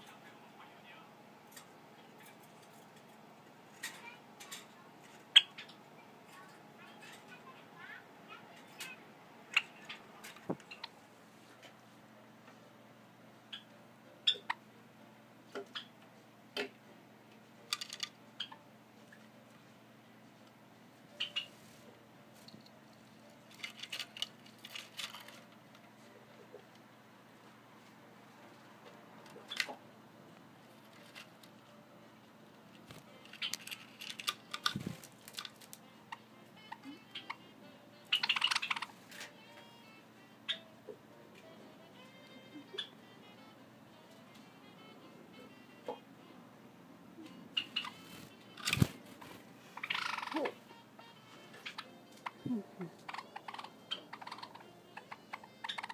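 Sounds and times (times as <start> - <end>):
sparrow chip calls and clicks: 14.3 - 14.6, 21.2 - 21.5, 38.1 - 38.9, 47.6 - 48.9, 49.8 - 50.5, 53.0 - 55.9
sparrow clicks and chips: 22.4 - 25.4, 32.8 - 35.8, 38.1 - 39.3, 47.2 - 50.5, 51.4 - 55.9.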